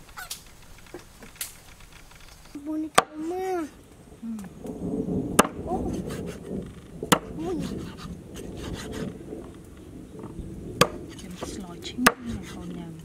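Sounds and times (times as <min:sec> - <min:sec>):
flesh scraping on wood: 0:05.9 - 0:06.4, 0:07.1 - 0:09.2, 0:12.2 - 0:12.8.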